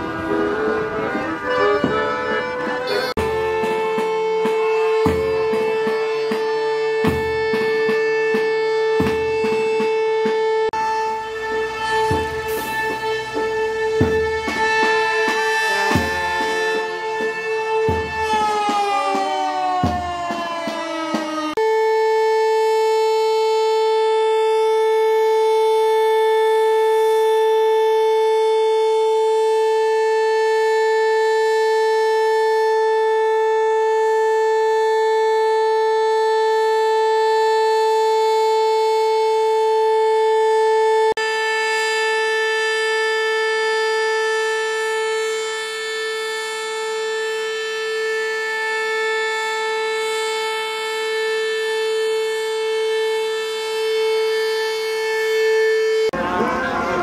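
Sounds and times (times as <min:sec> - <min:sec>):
steady horn-like tone: 0:00.0 - 0:19.2.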